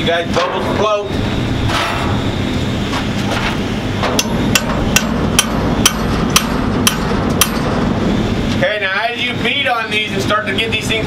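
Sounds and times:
hammer striking steel: 4.0s - 8.1s.

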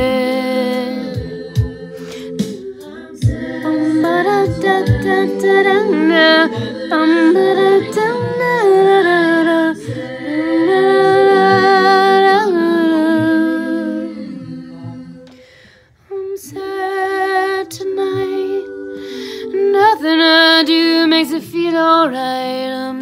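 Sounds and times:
woman humming: 5.8s - 6.5s.

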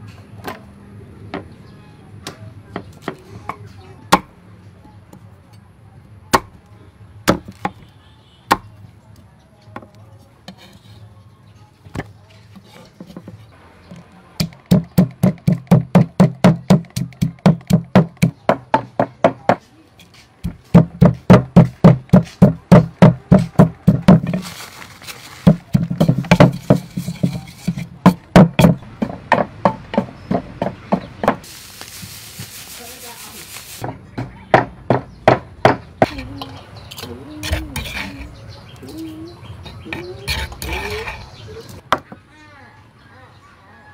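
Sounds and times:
pestle pounding in clay mortar: 14.4s - 19.6s, 20.4s - 24.5s, 25.4s - 31.5s.

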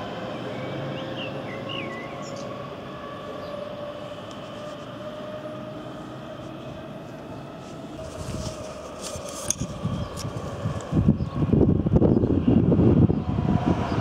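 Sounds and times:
electric train motor whine: 0.0s - 14.0s
wheels rumbling on rails: 0.0s - 14.0s.

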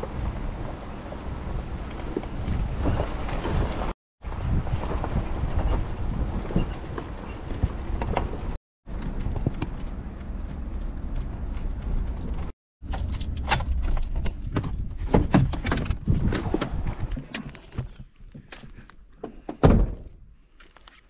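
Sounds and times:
truck engine rumbling: 0.0s - 15.1s.

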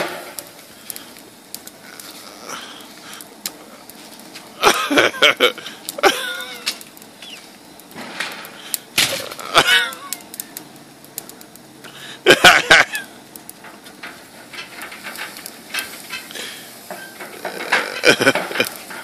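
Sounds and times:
man crying out: 9.2s - 10.2s
lemon scraping metal grill grates: 11.5s - 19.0s.

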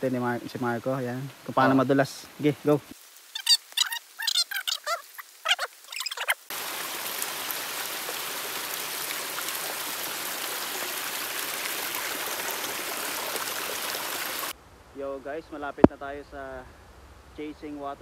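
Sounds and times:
stream water flowing: 0.0s - 14.6s
high-pitched cries: 3.4s - 6.4s.

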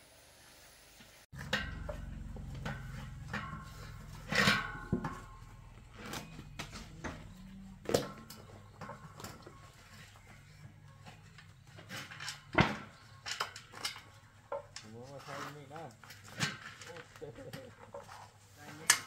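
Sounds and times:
objects knocking and clattering: 1.3s - 14.9s, 15.8s - 19.0s
low steady hum: 1.4s - 14.8s.

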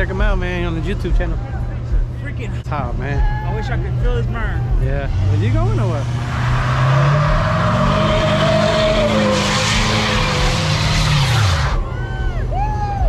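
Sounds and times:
truck engine revving: 0.0s - 12.0s
tyres skidding on pavement: 5.2s - 12.0s.

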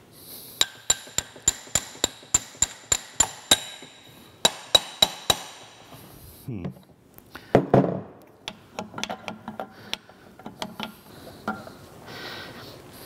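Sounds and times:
hammer striking metal punch: 0.6s - 5.7s.

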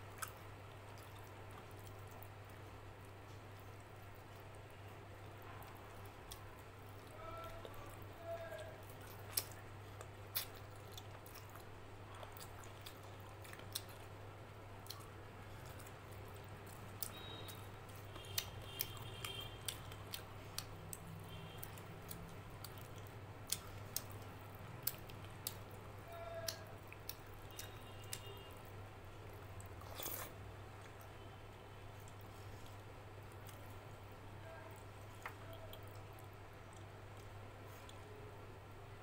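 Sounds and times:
chewing: 0.1s - 31.2s, 31.9s - 33.9s, 34.7s - 38.2s.

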